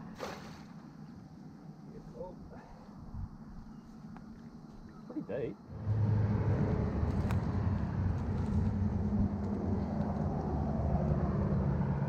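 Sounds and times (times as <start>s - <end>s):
vehicle engine low hum: 5.6s - 12.0s.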